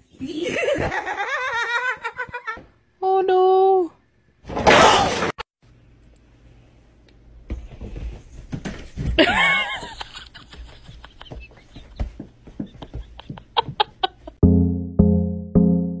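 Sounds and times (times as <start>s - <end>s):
light taps and thumps: 10.5s - 14.1s.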